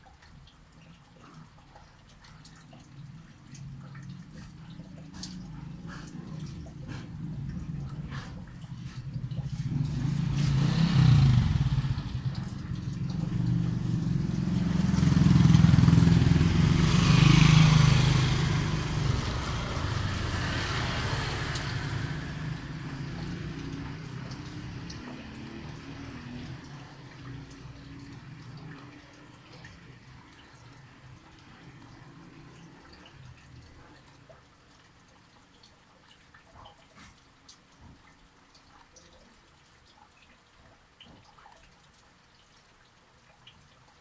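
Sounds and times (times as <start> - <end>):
vehicle engine hum: 3.0 - 34.2.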